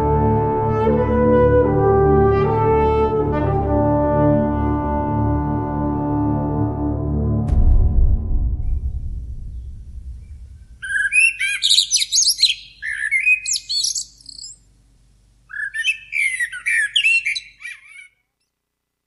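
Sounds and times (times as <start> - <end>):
ambient music: 0.0 - 11.4
songbird chirps and trills: 10.8 - 14.6, 15.4 - 18.5.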